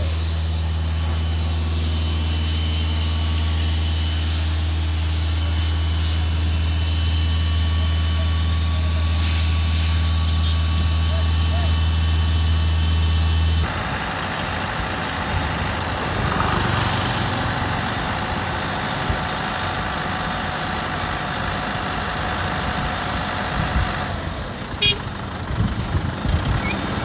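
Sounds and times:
air compressor engine humming: 0.0s - 19.0s, 24.7s - 25.2s
truck engine idling: 0.0s - 27.0s.

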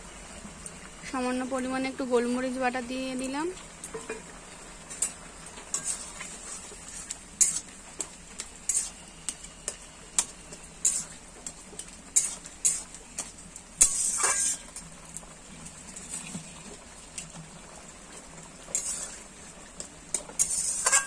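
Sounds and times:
metal spatula scraping a pot: 4.9s - 14.8s, 18.7s - 19.4s, 20.1s - 21.0s.

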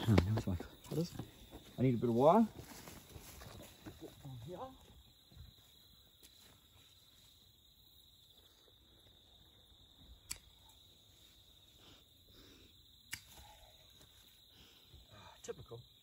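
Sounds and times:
sharp clicks: 10.2s - 10.6s, 13.1s - 13.4s.

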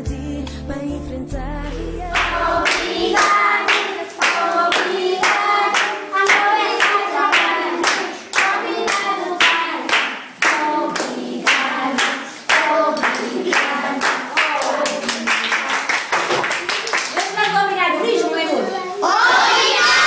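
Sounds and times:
children singing in unison: 1.7s - 15.5s, 19.0s - 20.0s
rhythmic clapping: 2.0s - 17.8s.

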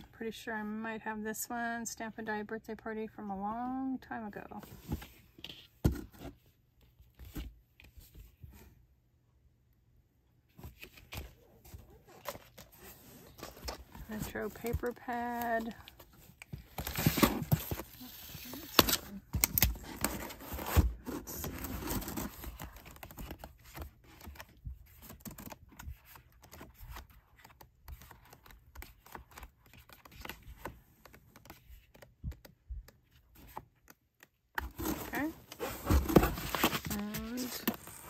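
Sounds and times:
packaging rustling and crinkling: 34.6s - 38.0s.

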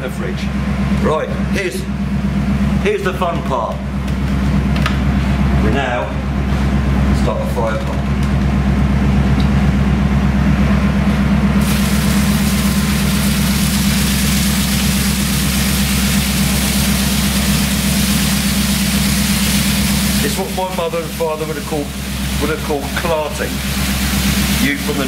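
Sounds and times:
pump humming: 8.0s - 25.0s
water jet hissing on steel deck: 11.6s - 25.0s.

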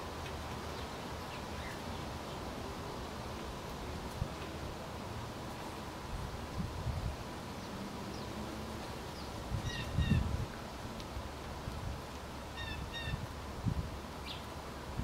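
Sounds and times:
bird calling: 9.6s - 10.2s, 12.5s - 13.2s.

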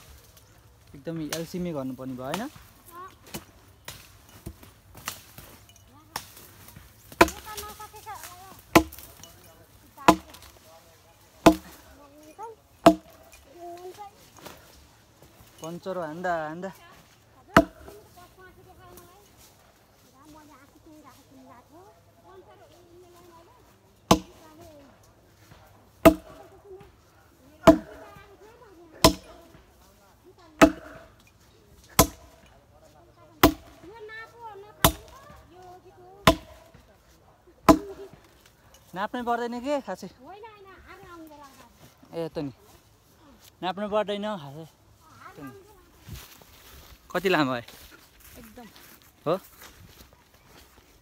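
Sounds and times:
heavy chopping blows: 6.1s - 9.2s, 10.0s - 10.6s, 11.4s - 11.9s, 12.8s - 13.4s, 17.5s - 18.1s, 24.1s - 24.6s, 25.5s - 26.5s, 27.6s - 28.2s, 30.6s - 31.2s, 31.9s - 32.4s, 36.2s - 36.8s, 37.6s - 38.3s
blade chopping on hard surface: 17.6s - 18.0s, 27.6s - 28.0s.

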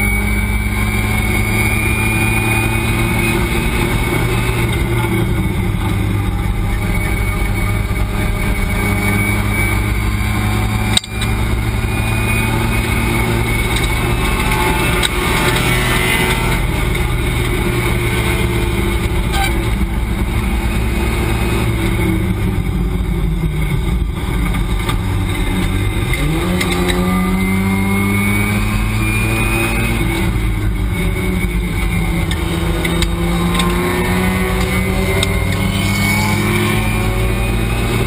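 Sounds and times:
race car engine revving: 0.0s - 38.0s.

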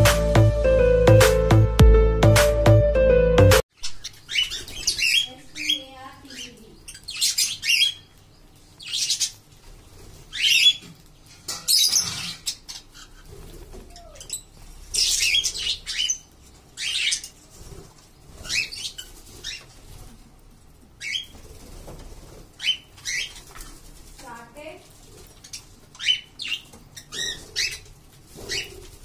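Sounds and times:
flock of parakeets calling: 4.0s - 8.1s, 11.7s - 17.4s, 25.5s - 28.8s.

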